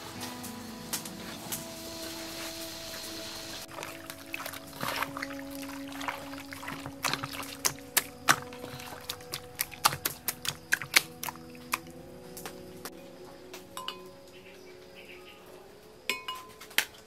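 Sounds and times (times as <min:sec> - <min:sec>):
soft background music: 0:00.0 - 0:17.0
hands squelching meat in marinade: 0:03.6 - 0:11.9.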